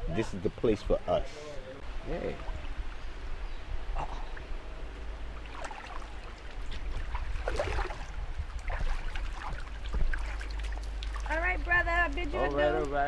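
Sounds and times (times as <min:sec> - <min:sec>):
pool water sloshing and splashing: 0:05.2 - 0:13.0.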